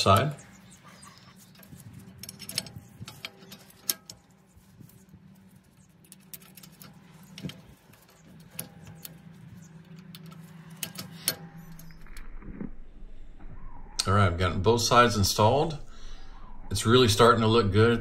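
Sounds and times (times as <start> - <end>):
metal clicks and clinks: 0.0 - 12.2.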